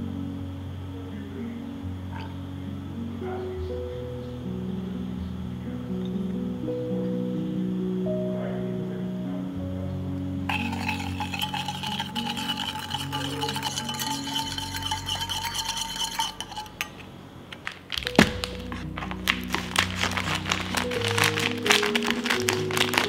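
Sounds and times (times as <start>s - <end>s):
soft background music: 0.0s - 16.8s, 17.9s - 23.0s
spoon clinking bowl: 10.5s - 17.1s
spoon scraping metal bowl: 10.5s - 17.1s.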